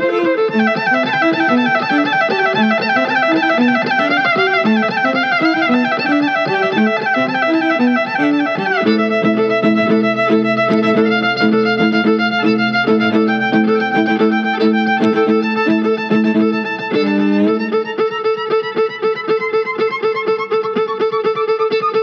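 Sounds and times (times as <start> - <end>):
violin music: 0.0 - 22.0
low bass line: 8.8 - 17.9.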